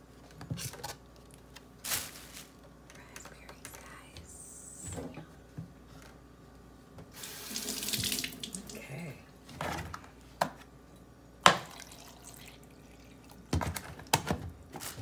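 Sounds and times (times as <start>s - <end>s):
tap running into steel sink: 7.6s - 8.3s.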